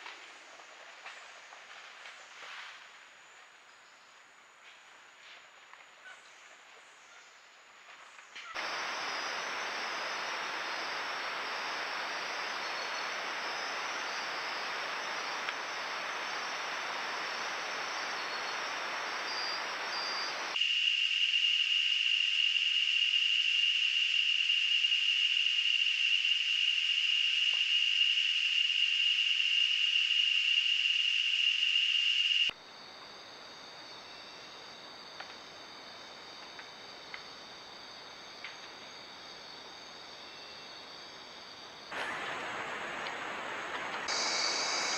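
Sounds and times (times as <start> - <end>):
faint insect trills: 0.0 - 44.9
night insects chirping: 6.8 - 44.9
steady hiss: 8.6 - 20.6, 32.4 - 44.9
high-pitched insect drone: 8.6 - 32.9, 44.1 - 44.9.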